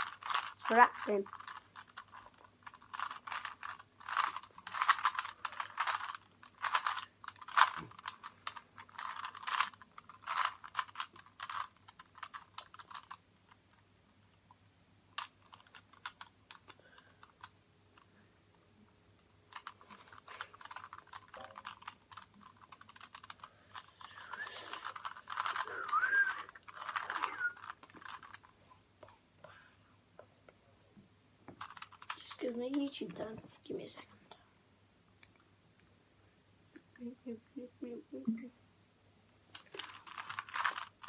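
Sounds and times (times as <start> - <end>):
rubik's cube plastic clicking: 0.0 - 13.8, 15.2 - 18.1, 19.5 - 28.5, 31.6 - 32.9, 39.5 - 41.0.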